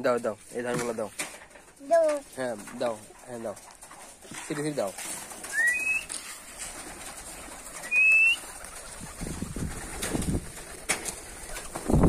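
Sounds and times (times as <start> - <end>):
pigeons' wings flapping: 3.7 - 12.0.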